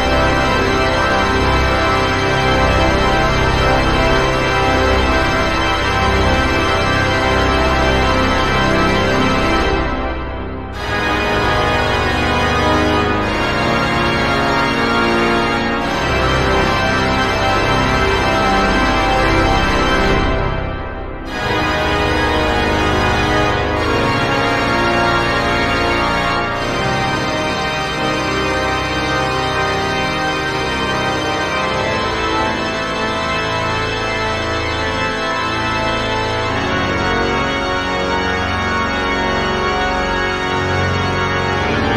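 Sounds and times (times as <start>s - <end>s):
pipe organ chords: 0.0s - 41.9s.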